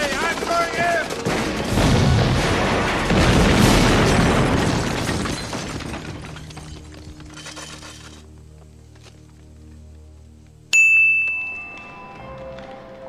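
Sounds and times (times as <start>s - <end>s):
cannon explosion rumbling: 1.2s - 5.8s.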